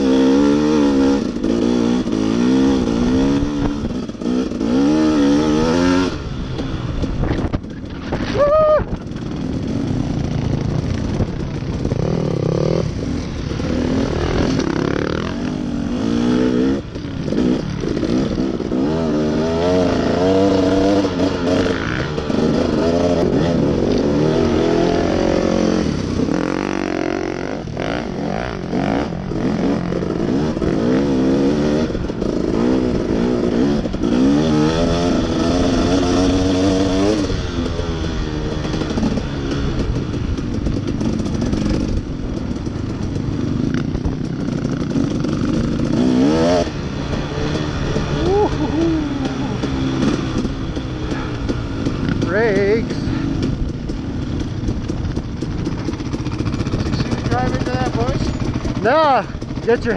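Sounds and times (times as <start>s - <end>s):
dirt bike engine revving: 0.0s - 59.9s.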